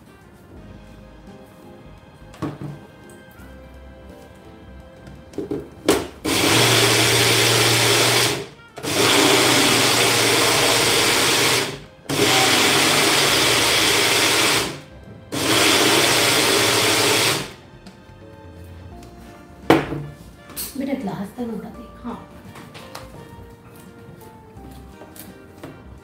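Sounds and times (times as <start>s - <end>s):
blender motor running: 6.2s - 17.6s.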